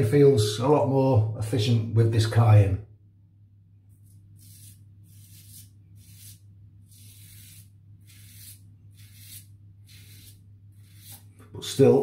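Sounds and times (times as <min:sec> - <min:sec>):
razor scraping stubble: 0:04.0 - 0:12.0.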